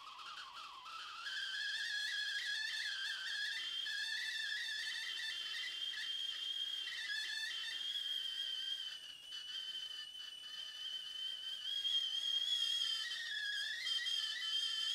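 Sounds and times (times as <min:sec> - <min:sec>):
kettle whistling: 0:00.0 - 0:14.9.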